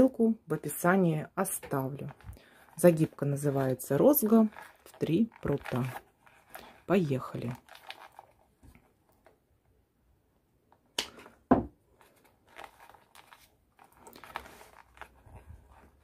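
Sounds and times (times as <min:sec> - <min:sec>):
paper tubes rustling and scraping: 0:01.4 - 0:09.3, 0:11.2 - 0:16.0
knock: 0:11.5 - 0:11.7.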